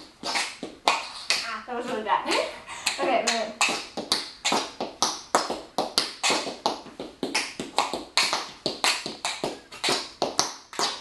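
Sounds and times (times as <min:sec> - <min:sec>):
tap shoes on concrete floor: 0:00.0 - 0:02.0, 0:03.0 - 0:11.0.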